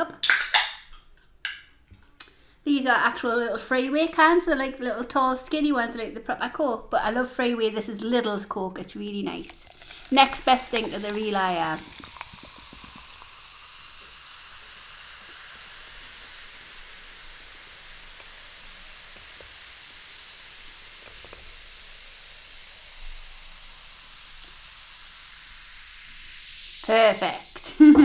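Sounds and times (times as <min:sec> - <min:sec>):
cola pouring and fizzing: 0:09.0 - 0:28.0.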